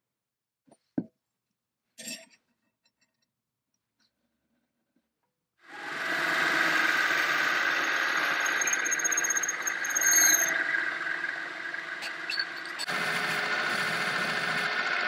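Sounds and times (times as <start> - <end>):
metal lathe running: 5.7 - 15.0
drill squealing in brass: 7.5 - 10.6.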